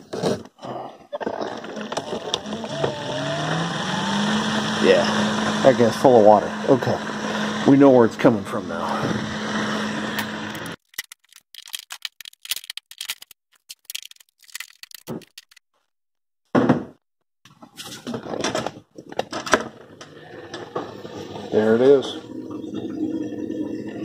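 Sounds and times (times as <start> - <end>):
screwdriver clicks and scrapes: 10.2 - 15.6
loud knock: 16.5 - 17.0.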